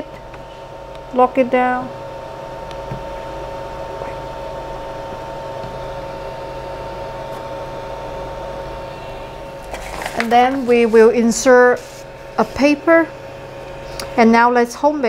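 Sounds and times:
machine fan hum and whine: 0:00.0 - 0:15.0.

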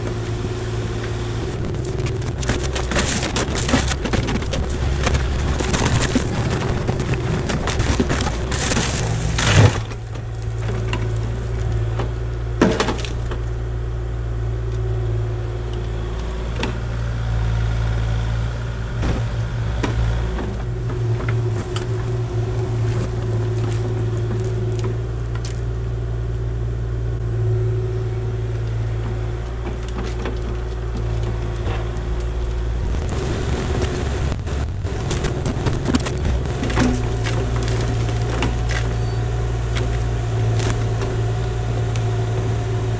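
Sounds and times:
excavator engine and hydraulics: 0:00.0 - 0:42.9
debris crackling and snapping: 0:00.1 - 0:12.0, 0:29.5 - 0:42.1
loud crack: 0:32.8 - 0:38.0.

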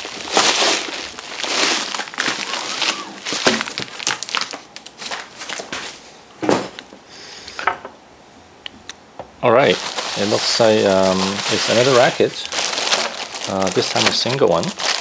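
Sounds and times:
bubble wrap crinkling: 0:00.0 - 0:06.0, 0:09.6 - 0:15.0.

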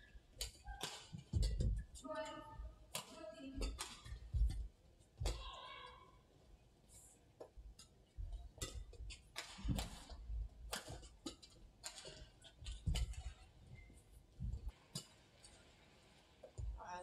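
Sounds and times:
rackets striking shuttlecock: 0:00.4 - 0:05.5, 0:07.8 - 0:13.9.

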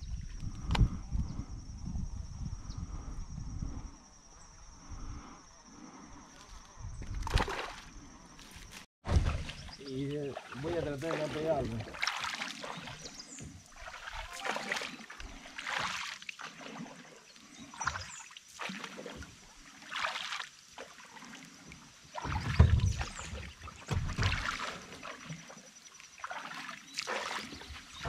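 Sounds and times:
paddle splashing through water: 0:09.0 - 0:28.0.

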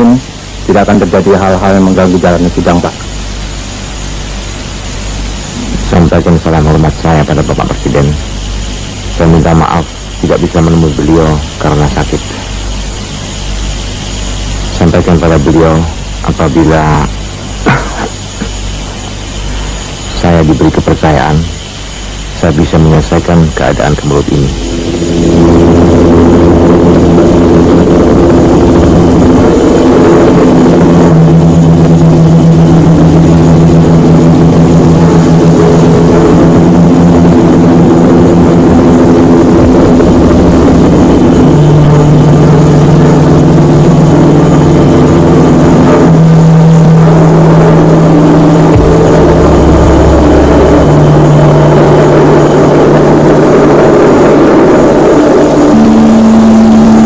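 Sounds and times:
helicopter engine and rotor: 0:21.5 - 0:57.0.

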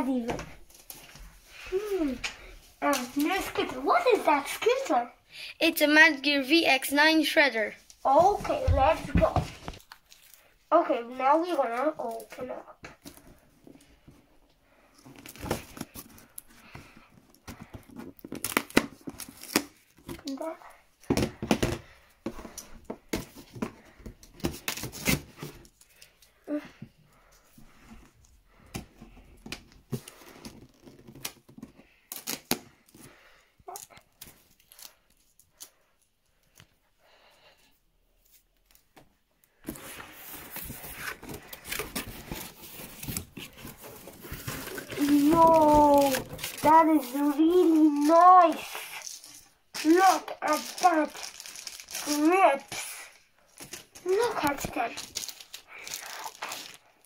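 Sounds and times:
cardboard rustling and tearing: 0:15.0 - 0:20.4, 0:22.8 - 0:25.9, 0:29.4 - 0:33.1, 0:39.6 - 0:57.0
cardboard box tearing open: 0:39.7 - 0:48.5.

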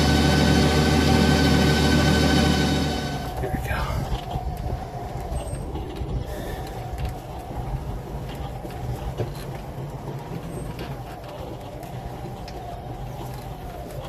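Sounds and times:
vehicle engine running: 0:00.0 - 0:14.0
rattles and creaks: 0:03.2 - 0:14.0.

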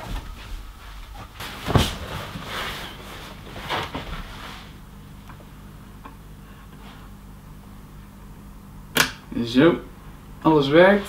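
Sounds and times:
rustling scraping noises: 0:00.0 - 0:04.8
loud thump: 0:01.6 - 0:02.1.

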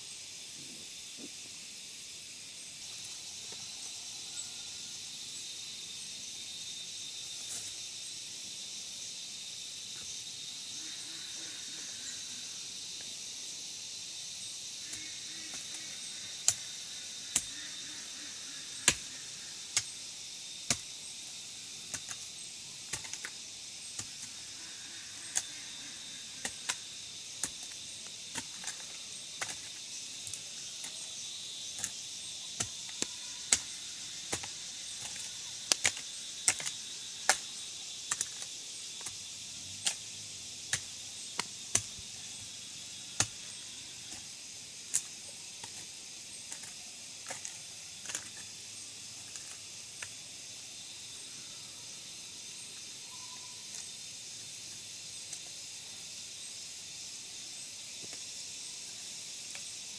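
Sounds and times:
forest insects hissing: 0:00.0 - 0:59.9.

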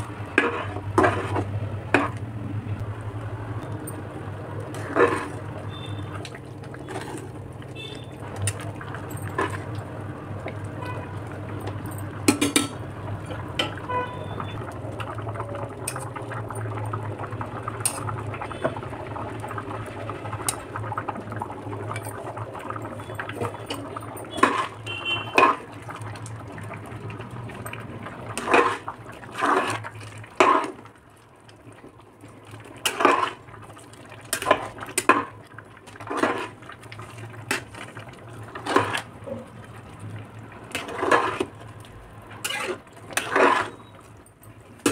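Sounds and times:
ladle scraping pressure cooker: 0:00.4 - 0:02.2, 0:04.7 - 0:06.0, 0:24.3 - 0:25.6, 0:28.4 - 0:29.8, 0:32.8 - 0:33.4, 0:38.5 - 0:39.1, 0:40.8 - 0:41.5, 0:42.4 - 0:43.9.

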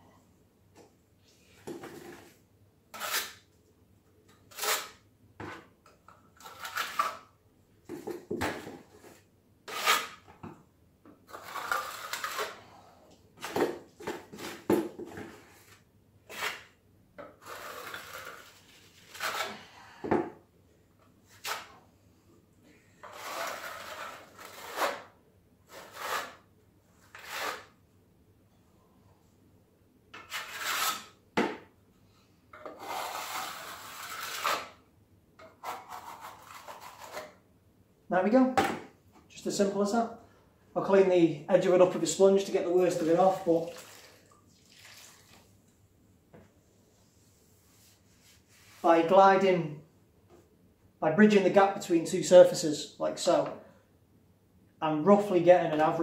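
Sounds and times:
trowel scraping plaster on wall: 0:01.7 - 0:03.5, 0:04.3 - 0:07.3, 0:08.6 - 0:10.3, 0:11.2 - 0:12.7, 0:13.4 - 0:19.8, 0:21.3 - 0:21.8, 0:23.0 - 0:27.8, 0:30.2 - 0:31.2, 0:32.6 - 0:34.8, 0:35.4 - 0:37.4.

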